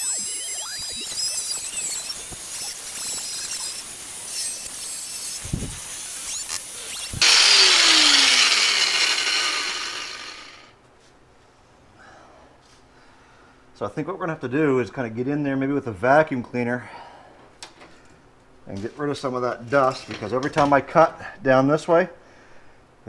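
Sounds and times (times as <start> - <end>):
angle grinder cutting sheet steel: 0.0 - 10.7.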